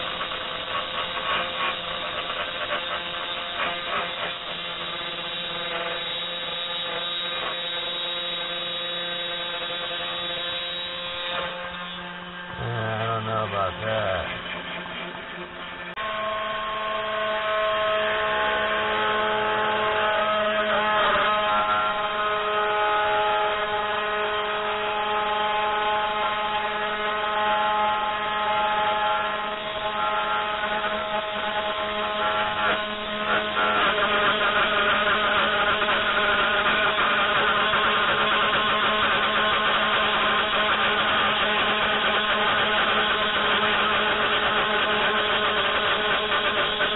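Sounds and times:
spindle motor running: 0.0s - 15.9s
stepper motors whining: 0.0s - 16.2s.

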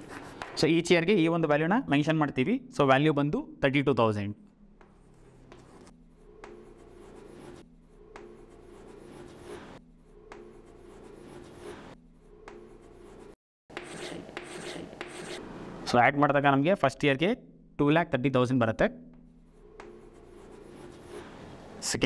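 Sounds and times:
chalk scratching on blackboard: 0.0s - 0.6s, 4.9s - 9.8s, 10.4s - 15.4s, 19.8s - 21.6s.

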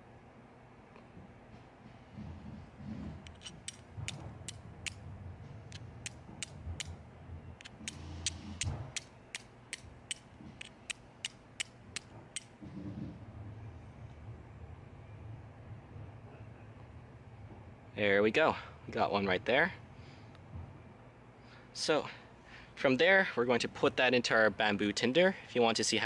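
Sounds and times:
steel striker clicking on stone: 3.3s - 5.0s, 6.0s - 6.9s, 7.6s - 12.5s.

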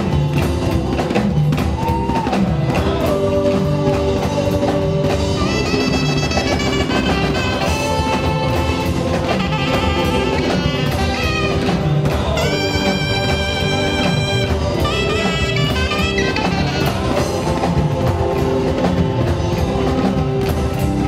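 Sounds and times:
drum kit groove: 0.0s - 21.0s
keyboard: 0.0s - 21.0s
saxophone long notes: 4.5s - 17.9s.

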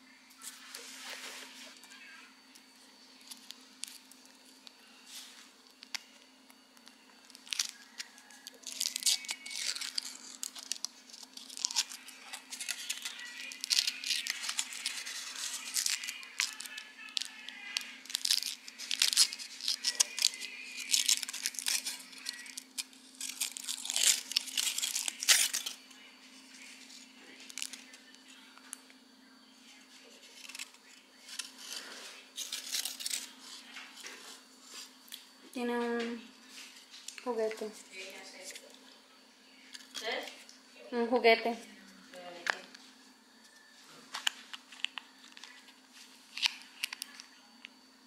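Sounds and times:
foil wrapper crinkling and tearing: 3.2s - 25.9s, 26.5s - 28.4s, 30.2s - 34.0s, 44.1s - 47.3s.

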